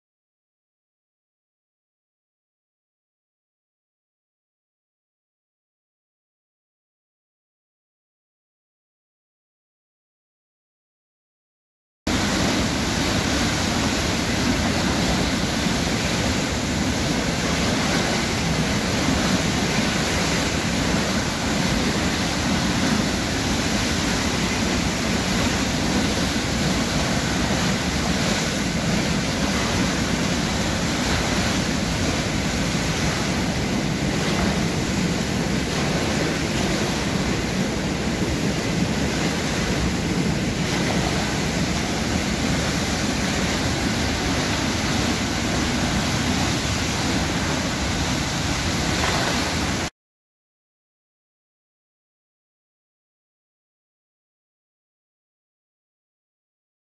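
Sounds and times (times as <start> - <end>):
water gushing from dam: 12.1 - 49.9.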